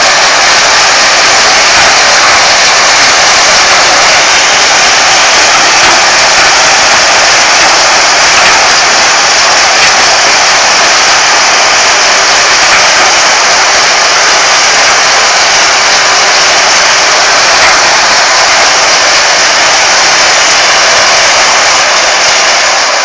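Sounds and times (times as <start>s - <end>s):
harvester running: 0.0s - 23.0s.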